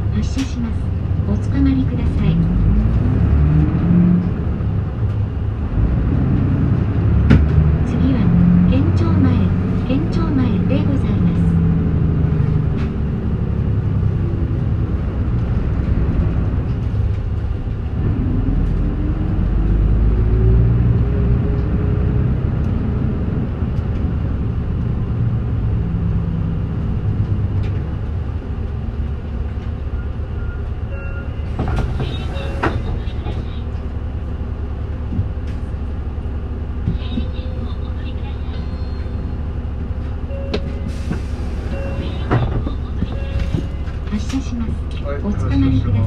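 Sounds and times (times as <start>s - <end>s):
bus engine drone: 0.0s - 46.0s
road rumble: 0.0s - 46.0s.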